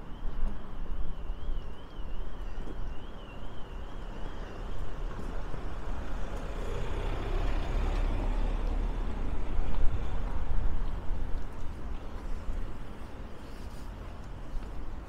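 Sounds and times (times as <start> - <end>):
van driving past: 6.1 - 9.5
wind buffeting microphone: 8.5 - 13.4.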